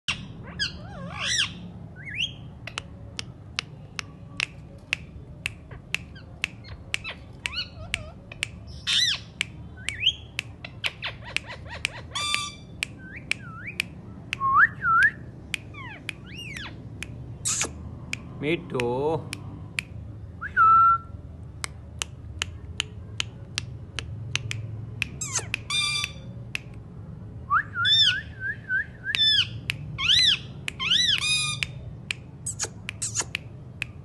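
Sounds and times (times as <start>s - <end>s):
parakeet squawk: 0.1s - 2.4s, 5.7s - 9.3s, 10.0s - 12.7s, 15.7s - 16.8s, 25.2s - 26.3s, 29.2s - 31.7s
parakeets whistling: 0.1s - 2.5s, 6.1s - 13.8s, 15.7s - 16.8s, 25.2s - 26.3s, 27.8s - 28.4s, 29.2s - 31.8s.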